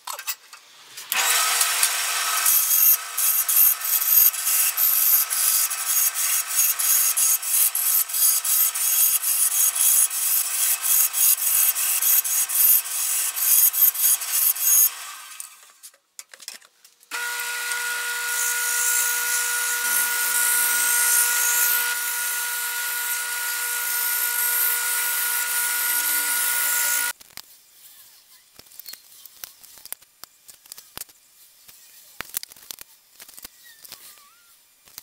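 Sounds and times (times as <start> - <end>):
wood lathe motor whine: 1.2 - 15.5, 17.1 - 27.1.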